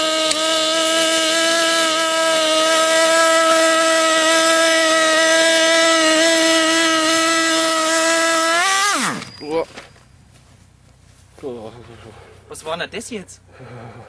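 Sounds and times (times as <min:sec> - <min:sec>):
model engine high-pitched whine: 0:00.0 - 0:09.6.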